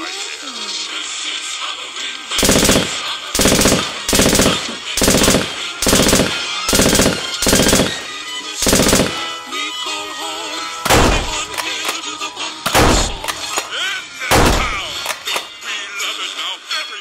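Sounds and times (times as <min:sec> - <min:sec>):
machine-gun fire bursts: 0:02.4 - 0:09.4, 0:10.9 - 0:12.0, 0:12.7 - 0:15.5.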